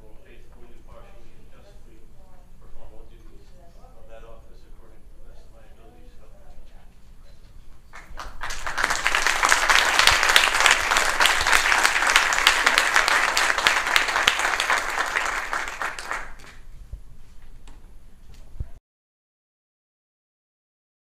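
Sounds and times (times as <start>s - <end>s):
crowd applauding: 8.0s - 16.6s.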